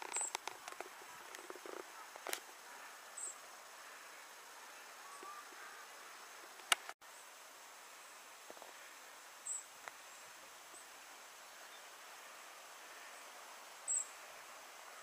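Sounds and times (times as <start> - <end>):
steady outdoor hiss: 0.0 - 15.0
high-pitched bird or insect chirps: 9.4 - 9.7.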